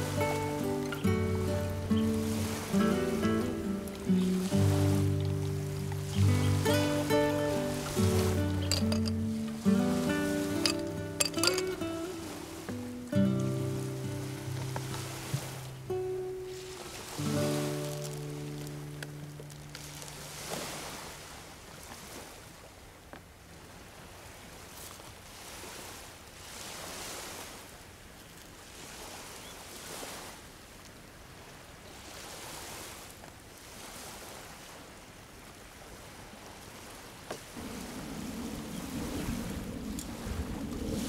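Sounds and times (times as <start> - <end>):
ocean surf washing onto beach: 0.0 - 41.0.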